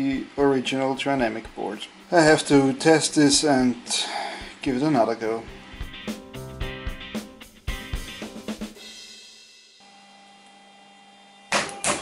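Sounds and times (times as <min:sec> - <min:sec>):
machine hum with held tones: 0:00.0 - 0:08.2, 0:09.7 - 0:11.8
cymbal of music sting: 0:05.5 - 0:09.8.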